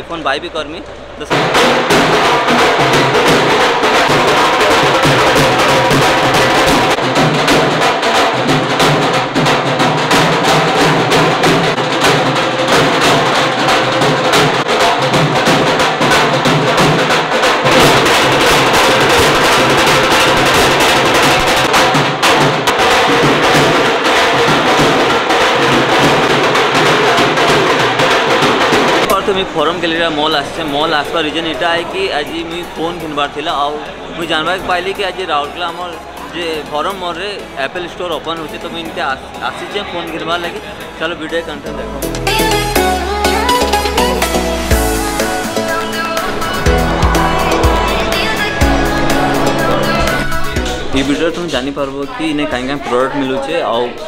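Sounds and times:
snare and bass drums playing: 0:01.2 - 0:52.8.

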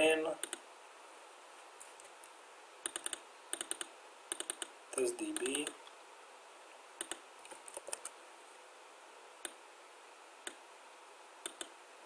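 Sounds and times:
faint room noise: 0:00.0 - 0:12.0
computer mouse clicks: 0:00.4 - 0:00.6, 0:01.8 - 0:04.7, 0:05.3 - 0:05.8, 0:07.0 - 0:08.2, 0:11.4 - 0:11.8.

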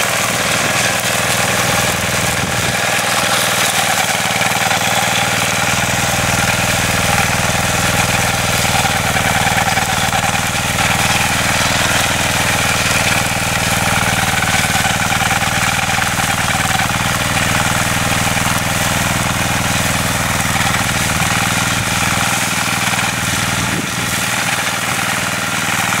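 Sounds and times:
tractor engine running under load: 0:00.0 - 0:26.0.

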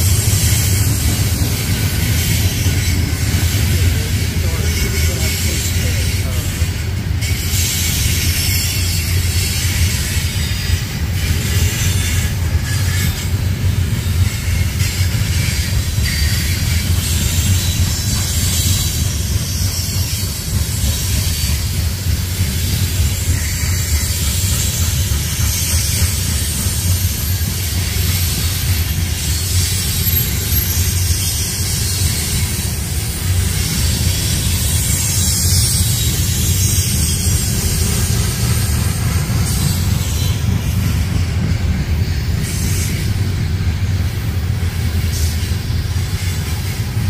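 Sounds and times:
train wheels rumbling on rails: 0:00.0 - 0:47.0
hiss: 0:14.2 - 0:47.0.

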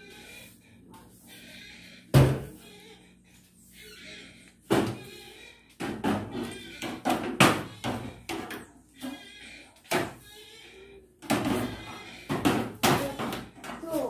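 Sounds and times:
broom sweeping tiled floor: 0:00.0 - 0:07.3, 0:11.4 - 0:14.0
broom knocking on tiles: 0:04.7 - 0:05.1, 0:11.2 - 0:13.9.

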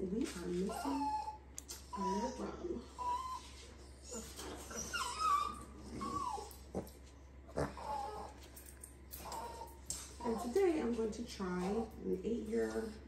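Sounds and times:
puppy whining: 0:00.4 - 0:10.7.

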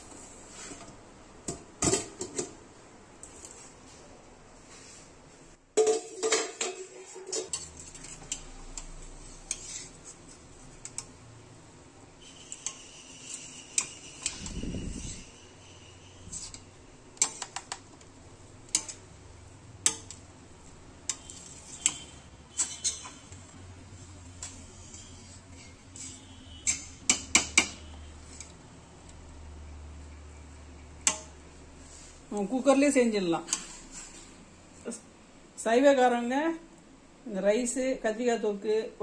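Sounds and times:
metal ladle clinking in pot: 0:21.1 - 0:23.3, 0:25.6 - 0:27.8.

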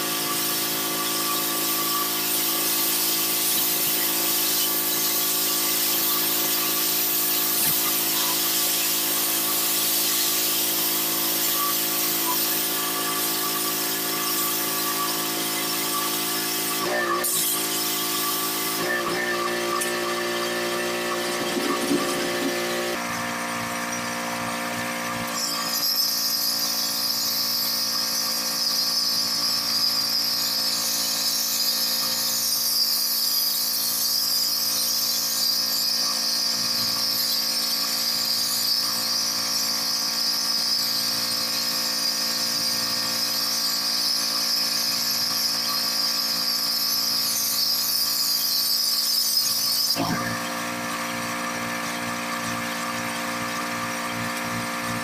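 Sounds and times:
pressure washer hum: 0:00.0 - 0:25.4, 0:47.2 - 0:55.0
water jet spraying on bricks: 0:00.0 - 0:55.0.

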